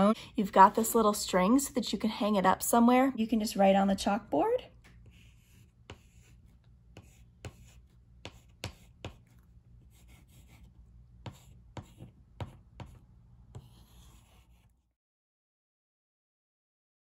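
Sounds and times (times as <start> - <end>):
chalk tapping and scratching on board: 4.8 - 14.8.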